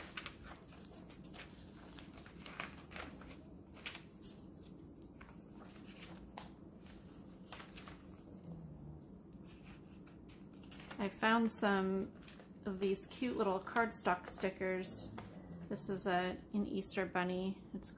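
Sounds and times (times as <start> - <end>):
paper pages rustling: 0.0 - 8.4, 9.3 - 11.3, 12.0 - 15.7
faint room hum: 0.0 - 17.9.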